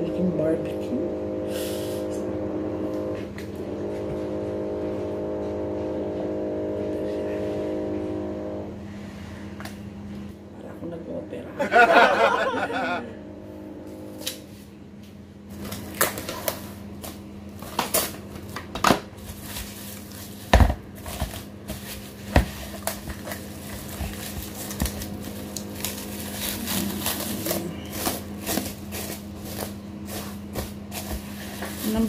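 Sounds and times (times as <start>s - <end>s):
steady low hum: 0.0s - 32.0s
plastic cling wrap crinkling: 15.6s - 32.0s.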